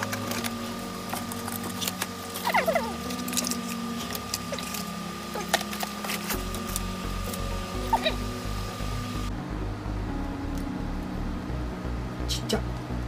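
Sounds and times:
plastic packaging crinkling: 0:00.0 - 0:07.6
steady high hum: 0:00.0 - 0:13.0.

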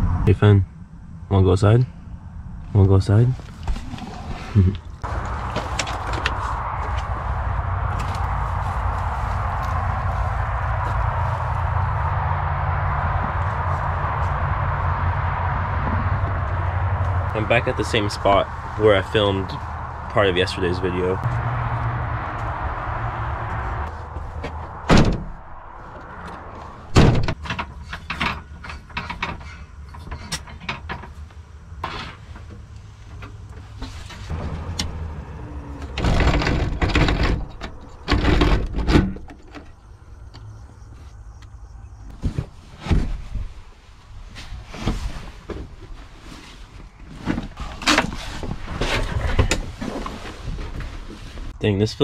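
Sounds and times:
van door clunking shut: 0:24.8 - 0:25.4, 0:26.9 - 0:28.3
knocks and rattles of fittings: 0:27.0 - 0:34.2, 0:36.0 - 0:39.8.

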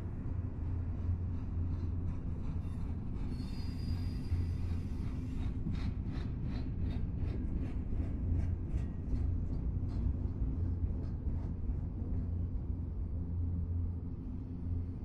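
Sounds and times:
high wheel squeal: 0:03.3 - 0:04.8.

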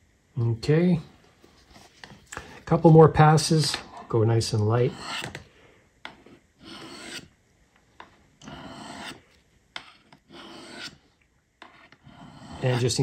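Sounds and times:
knife scraping on sharpening stone: 0:04.9 - 0:05.4, 0:06.6 - 0:07.3, 0:08.4 - 0:09.2, 0:09.8 - 0:11.0, 0:11.6 - 0:13.0.

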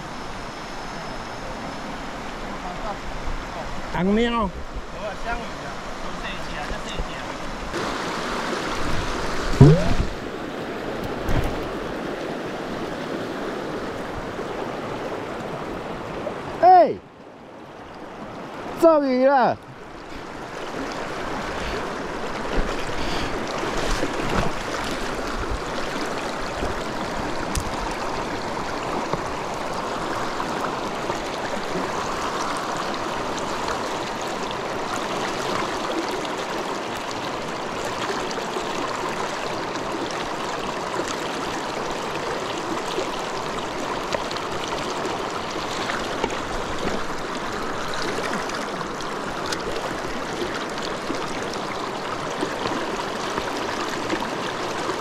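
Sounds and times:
stream rushing over stones: 0:04.8 - 0:55.0
sharp knocks: 0:09.6 - 0:10.2.

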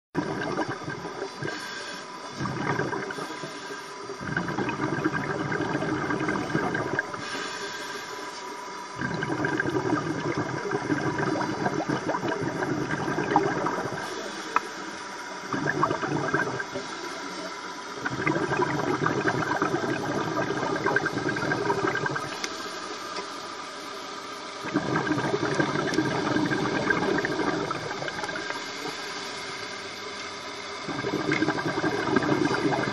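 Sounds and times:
exhaled bubbles rushing: 0:00.2 - 0:03.5, 0:04.1 - 0:07.4, 0:09.0 - 0:14.4, 0:15.4 - 0:22.5, 0:24.6 - 0:29.0, 0:30.8 - 0:32.9
regulator inhale hiss: 0:01.1 - 0:15.5, 0:16.4 - 0:18.0, 0:19.0 - 0:31.2.

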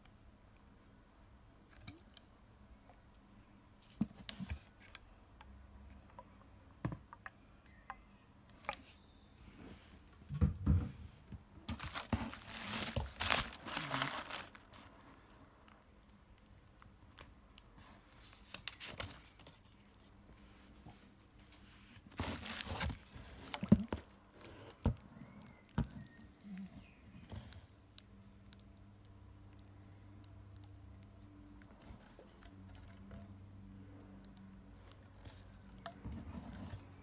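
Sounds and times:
bubble wrap rustling and tearing: 0:11.7 - 0:27.8, 0:34.8 - 0:37.0.

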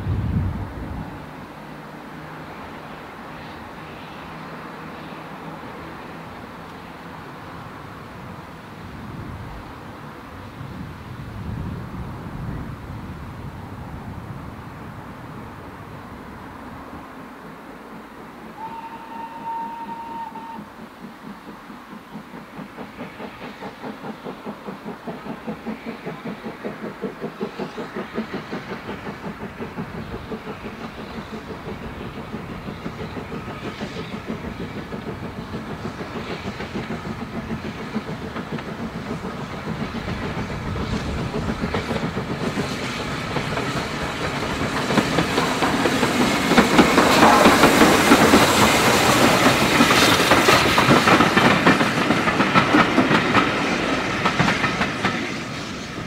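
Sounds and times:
steam locomotive exhaust beating: 0:00.0 - 0:56.0
train wheels clattering over rail joints: 0:20.6 - 0:56.0.

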